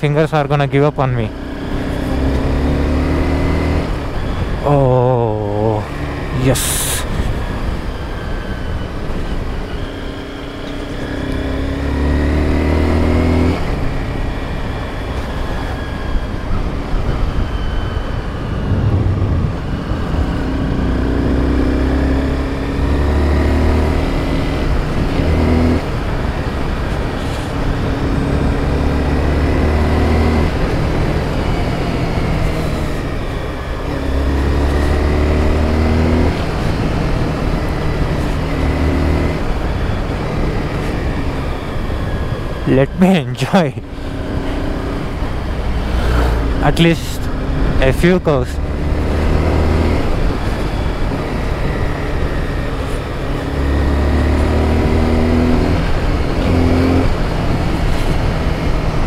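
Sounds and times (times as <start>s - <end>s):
motorcycle engine revving: 1.0s - 59.0s
wind rush: 17.0s - 20.9s.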